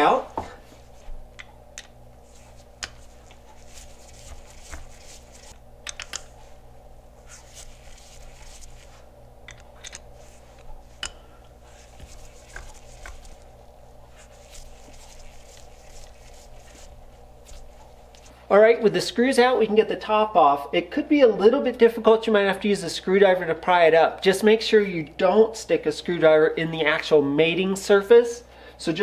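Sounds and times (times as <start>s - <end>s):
steady low hum: 0.0s - 27.8s
screwdriver scraping screws: 9.5s - 11.1s.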